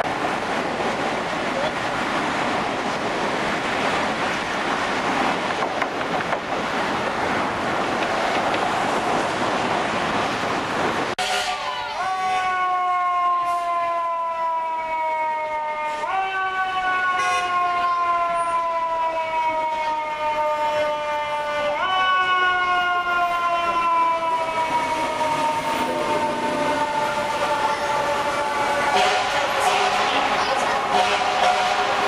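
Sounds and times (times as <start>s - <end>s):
fire engine siren wailing: 11.2s - 32.0s.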